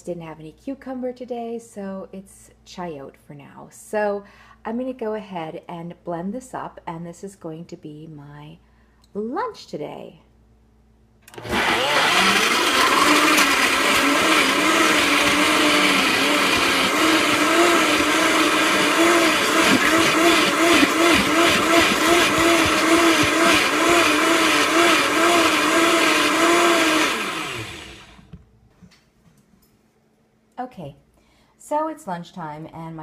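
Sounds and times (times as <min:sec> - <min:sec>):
blender running: 0:11.3 - 0:28.3.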